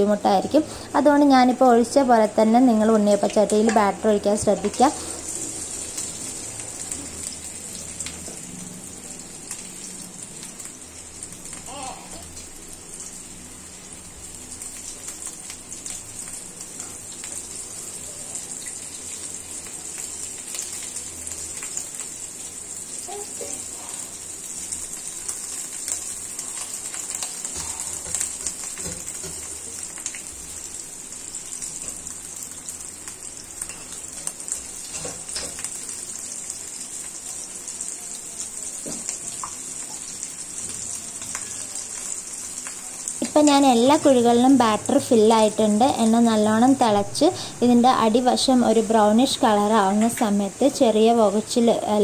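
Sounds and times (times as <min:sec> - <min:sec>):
batter sizzling in hot oil: 0:00.0 - 0:52.0.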